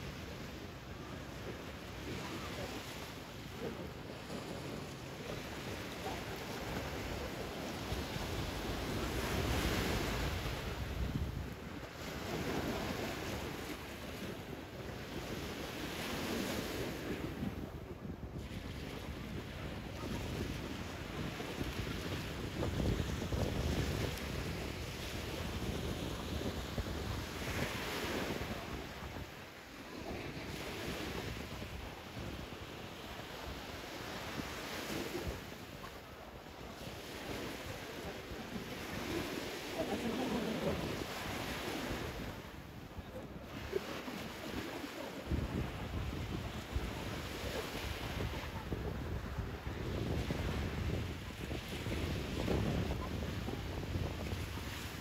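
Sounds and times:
small waves breaking on sand: 0:00.0 - 0:55.0
wind on microphone: 0:00.0 - 0:55.0
wind buffeting microphone: 0:16.2 - 0:29.4, 0:44.6 - 0:55.0.

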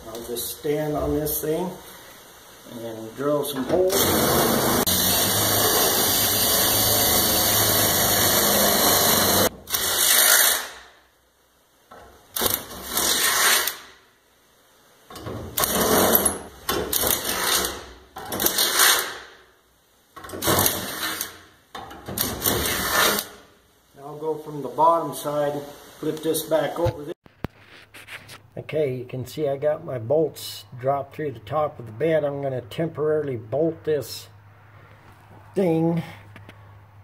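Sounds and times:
cordless drill boring: 0:03.9 - 0:10.7.

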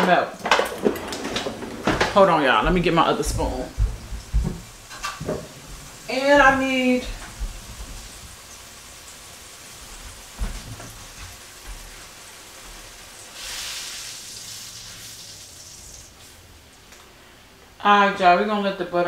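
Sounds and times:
knock: 0:01.8 - 0:05.6
butter sizzling in a skillet: 0:02.7 - 0:16.8.

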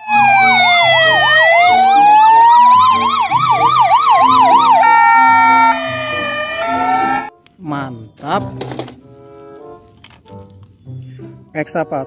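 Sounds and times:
siren fast yelp: 0:00.0 - 0:07.3
ambulance siren wailing: 0:00.0 - 0:07.4.

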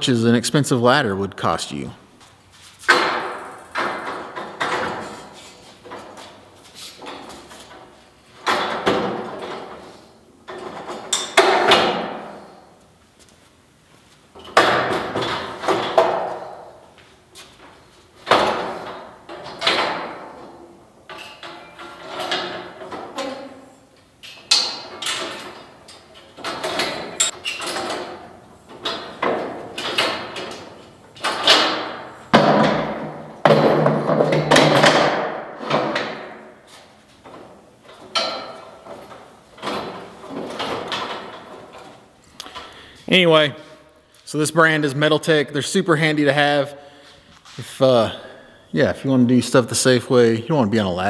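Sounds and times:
steel scaffold clanks and knocks: 0:02.8 - 0:12.6, 0:14.3 - 0:16.8, 0:17.5 - 0:23.5, 0:24.2 - 0:42.8.

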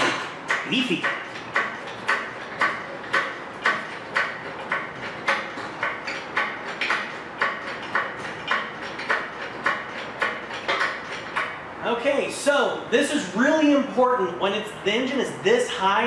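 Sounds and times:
hand pump metallic clacks: 0:00.0 - 0:11.6.

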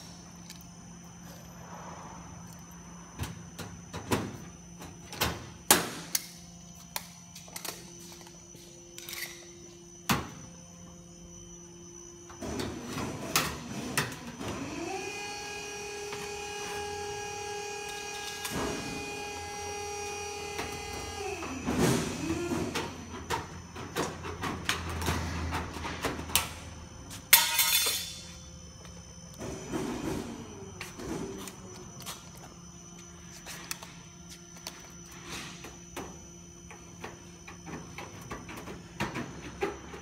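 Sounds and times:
machine hum with whine: 0:00.0 - 0:40.0.

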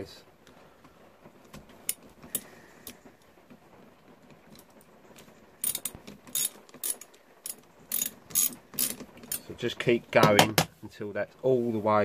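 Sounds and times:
socket ratchet clicking: 0:05.6 - 0:09.4.

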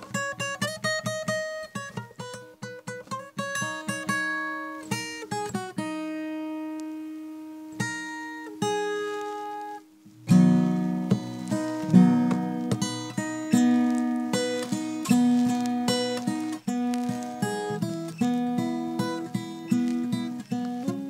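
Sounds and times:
acoustic guitar playing: 0:00.0 - 0:21.0.

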